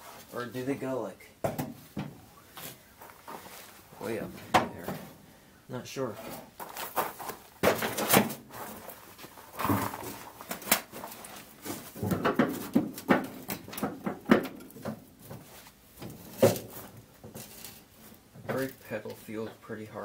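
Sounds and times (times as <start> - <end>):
irregular knocks and clicks: 12.0 - 15.4.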